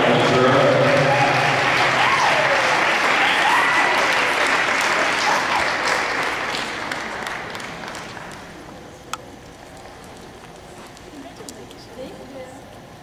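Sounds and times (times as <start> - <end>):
audience cheering: 0.0 - 8.3
audience applauding: 0.0 - 8.7.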